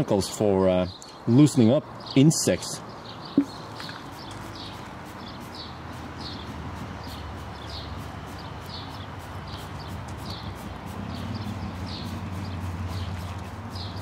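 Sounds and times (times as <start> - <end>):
spray bottle squirting: 3.4 - 14.0.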